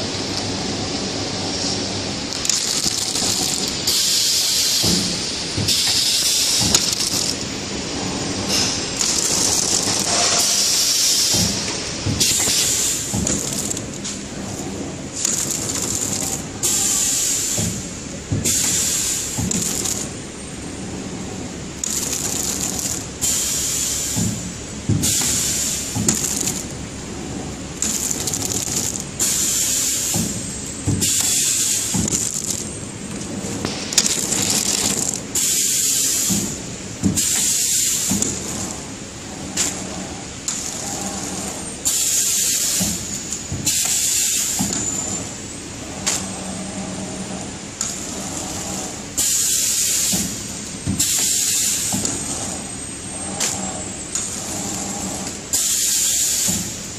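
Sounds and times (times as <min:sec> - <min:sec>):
wrapping machine rattling: 0:02.3 - 0:07.5, 0:08.5 - 0:20.2, 0:21.8 - 0:23.3, 0:25.1 - 0:26.7, 0:27.8 - 0:38.8.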